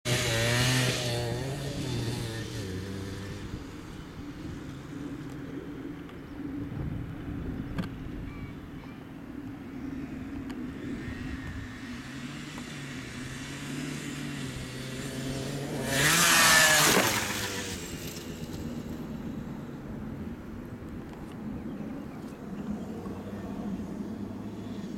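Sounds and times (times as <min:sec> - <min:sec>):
motorbike engine revving past: 0:00.1 - 0:05.6, 0:09.9 - 0:19.8, 0:22.5 - 0:24.9.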